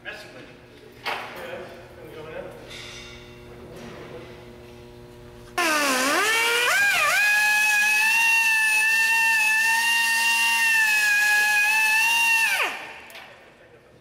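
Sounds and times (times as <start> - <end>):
pneumatic grinder whining: 5.6 - 12.9.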